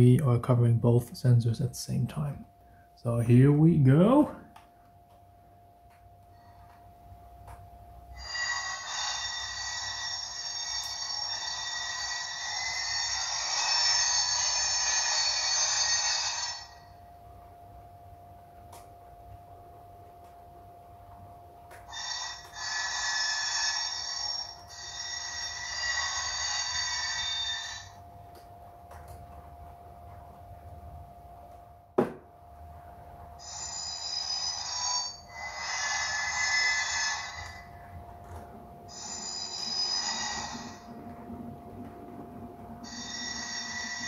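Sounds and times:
steady hum: 0:00.0 - 0:44.0
high-pitched wheel squeal from speaker: 0:08.2 - 0:16.9, 0:21.9 - 0:28.0, 0:33.4 - 0:37.7, 0:38.9 - 0:41.1, 0:42.8 - 0:44.0.

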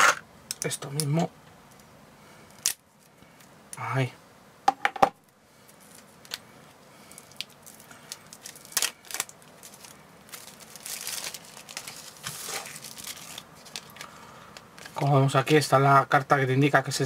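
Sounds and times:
plastic wrap crinkling and tearing: 0:07.1 - 0:14.1.

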